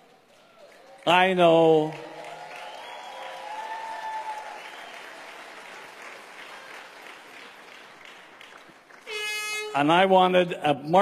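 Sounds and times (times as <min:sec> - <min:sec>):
audience applauding: 0:00.6 - 0:09.2.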